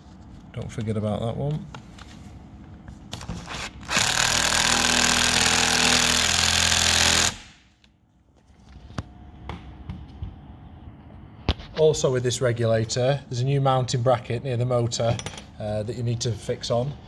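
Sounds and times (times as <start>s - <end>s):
impact driver hammering screw: 3.9s - 7.6s.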